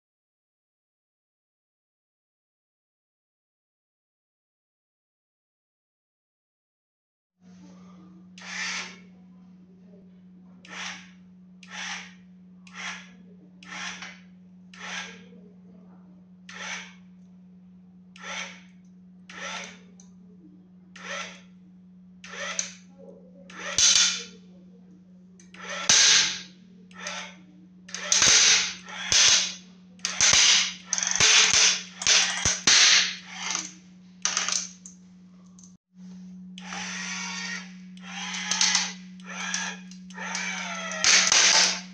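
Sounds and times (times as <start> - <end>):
electric motor humming: 7.7 - 9.2, 10.6 - 15.4, 18.0 - 41.9
wooden board creaking: 36.8 - 41.9.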